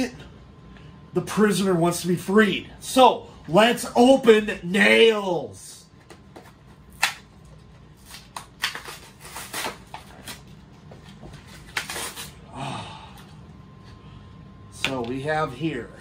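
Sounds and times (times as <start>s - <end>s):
packaging being torn open: 8.0s - 10.5s, 11.6s - 12.4s
low vocal sound: 12.5s - 13.4s.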